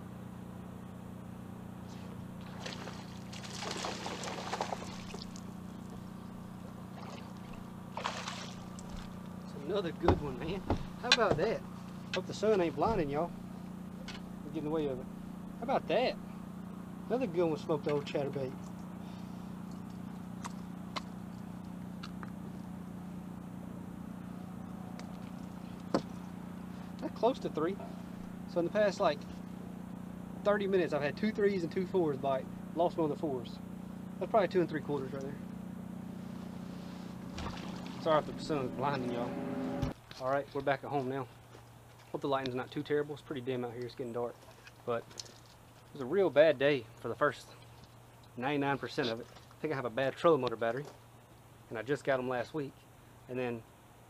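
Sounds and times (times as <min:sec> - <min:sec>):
steady low hum: 0:00.0 - 0:54.0
water splashing: 0:02.4 - 0:09.2, 0:37.2 - 0:39.4.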